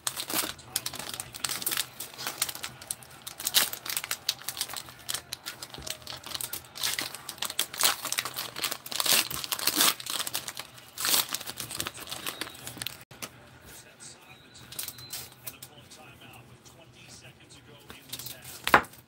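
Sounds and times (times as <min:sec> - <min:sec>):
plastic wrapper crinkling and tearing: 0:00.0 - 0:13.1.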